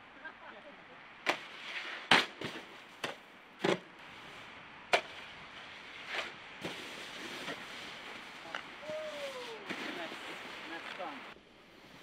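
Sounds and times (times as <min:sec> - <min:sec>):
snowboard slamming on icy snow: 0:01.3 - 0:03.8, 0:06.1 - 0:08.4, 0:09.6 - 0:11.2
snowboard scraping over snow: 0:05.1 - 0:12.0.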